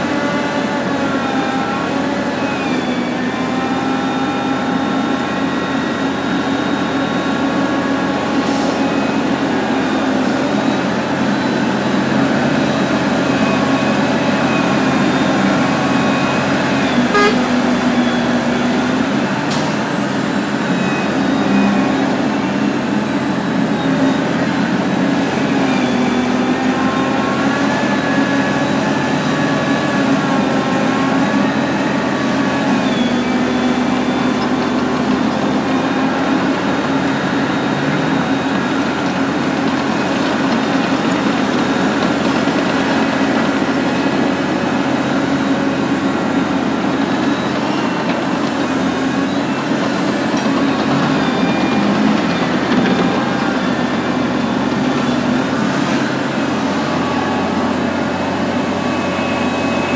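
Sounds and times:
dump truck and dozer running: 0:00.0 - 0:59.9
excavator engine and hydraulics: 0:00.0 - 0:59.9.

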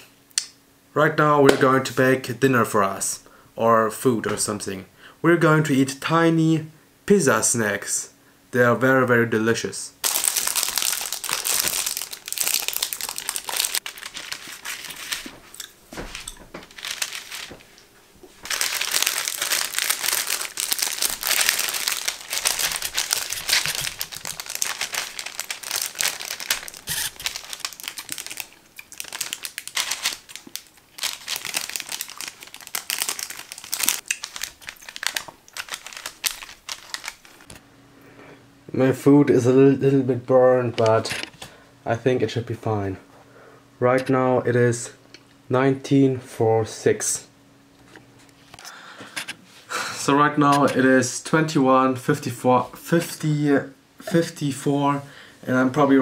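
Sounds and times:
plastic wrapping crinkling: 0:10.0 - 0:37.6.

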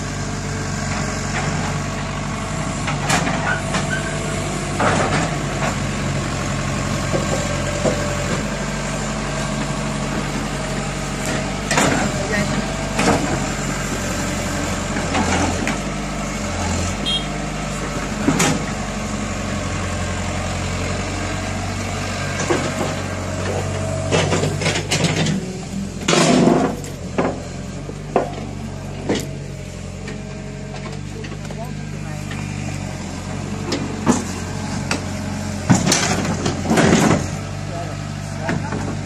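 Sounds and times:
excavator diesel engine running: 0:00.0 - 0:39.0.

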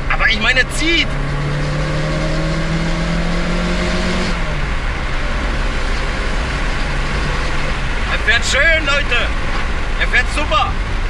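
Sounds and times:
car engine accelerating: 0:00.0 - 0:11.0.

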